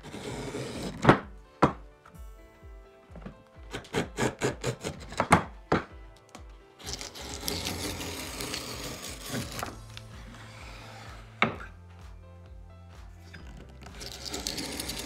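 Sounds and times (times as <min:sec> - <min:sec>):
rushing scraping noise: 0:00.0 - 0:01.2, 0:06.8 - 0:11.7, 0:13.2 - 0:15.0
background music: 0:00.0 - 0:15.0.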